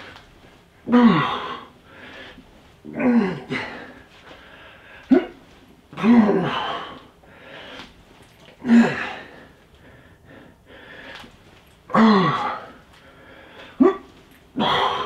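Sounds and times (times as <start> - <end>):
man grunting with effort: 0.9 - 1.7, 2.9 - 3.9, 6.0 - 7.0, 8.6 - 9.3, 11.9 - 12.8, 13.8 - 15.0
heavy breathing: 0.9 - 5.7, 6.4 - 8.0, 8.6 - 11.5, 12.2 - 15.0.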